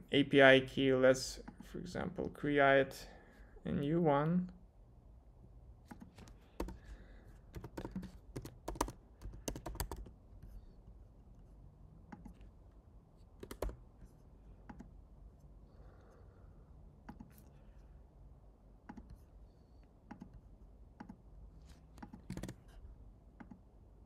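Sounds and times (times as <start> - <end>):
keyboard keystrokes: 7.6 - 10.1, 13.4 - 13.8, 22.0 - 22.6.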